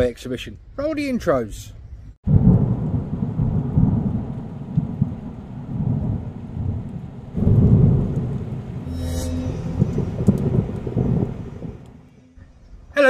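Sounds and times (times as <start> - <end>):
rolling thunder: 2.2 - 12.1
rain hiss: 2.3 - 8.9, 9.8 - 12.1.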